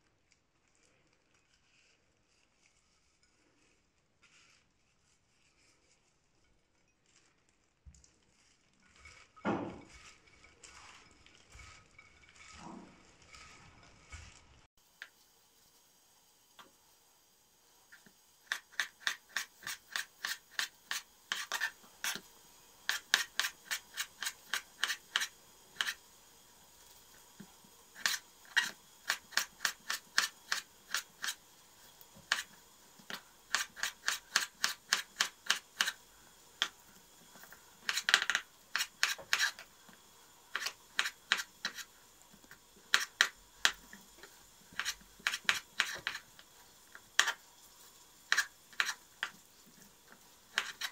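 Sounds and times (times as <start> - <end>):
knife slicing vegetables: 17.9 - 26.1, 27.0 - 50.9.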